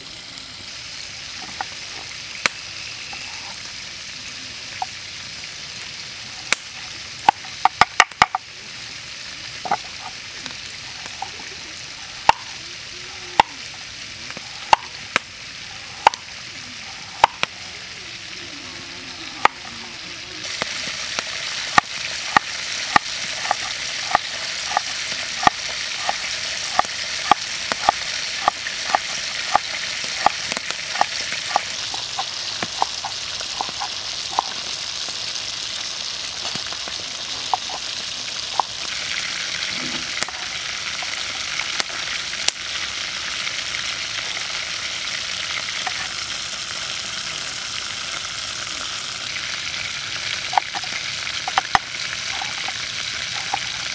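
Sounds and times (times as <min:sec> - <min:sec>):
chicken deep-frying in oil: 0:00.0 - 0:53.9
knife chopping on wooden board: 0:22.3 - 0:29.6, 0:30.2 - 0:34.5.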